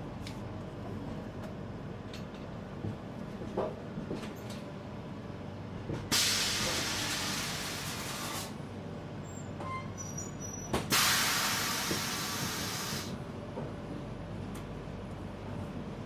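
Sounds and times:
train coach rumbling on track: 0.0s - 16.0s
train air brakes hissing: 6.1s - 8.6s, 10.8s - 13.2s.

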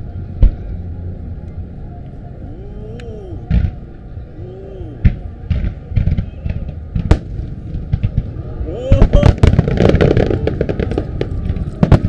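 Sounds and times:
low rumble: 0.0s - 12.0s
firework bangs: 5.0s - 12.0s.

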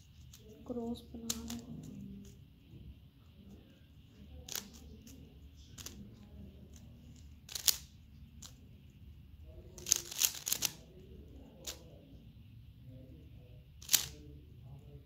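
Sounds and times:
plastic puzzle cube clicks: 1.3s - 2.4s, 4.5s - 4.8s, 5.8s - 6.0s, 7.5s - 8.6s, 9.8s - 10.8s, 13.8s - 14.2s.

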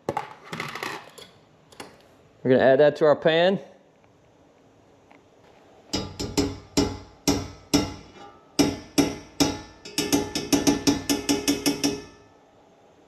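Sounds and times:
metal spoon knocking on skillet: 6.0s - 12.3s.

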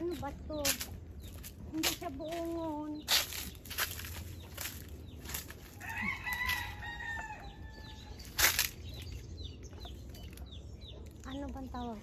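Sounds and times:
small birds chirping: 0.0s - 12.0s
rooster crowing: 5.8s - 8.2s.

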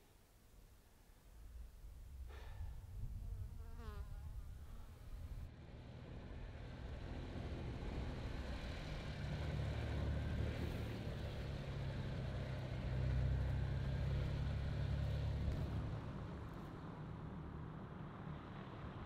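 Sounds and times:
vehicle engine humming: 4.9s - 19.0s.

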